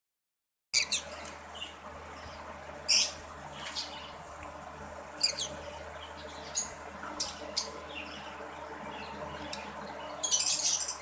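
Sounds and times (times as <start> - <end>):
parrots chirping: 0.8 - 4.2, 5.2 - 8.4, 9.0 - 11.0
steady low hum: 0.8 - 11.0.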